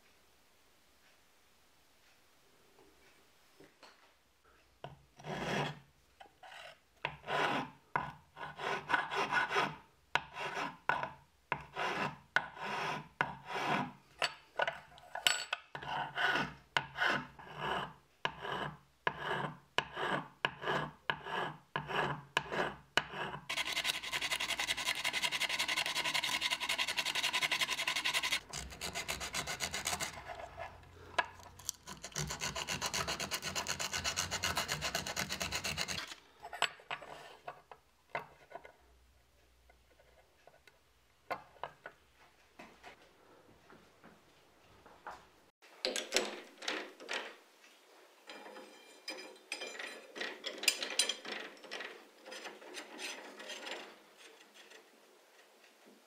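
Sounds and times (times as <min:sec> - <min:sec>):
metal file rasping on metal: 0:05.2 - 0:05.8, 0:06.4 - 0:07.8, 0:08.4 - 0:10.9, 0:11.6 - 0:14.0, 0:15.8 - 0:30.8, 0:31.5 - 0:36.2.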